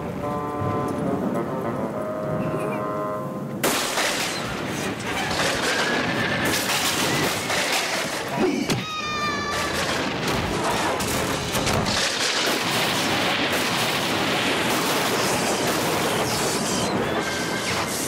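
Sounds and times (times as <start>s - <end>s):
carriage crashing and clattering: 3.6s - 8.8s, 9.5s - 14.0s
horse whinnying: 8.4s - 10.1s.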